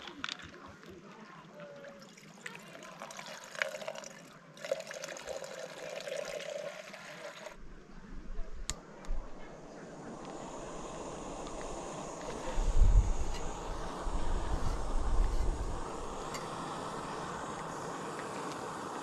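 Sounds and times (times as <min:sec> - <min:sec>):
water pouring into metal pot: 0:02.0 - 0:07.6
wind on microphone: 0:07.6 - 0:18.9.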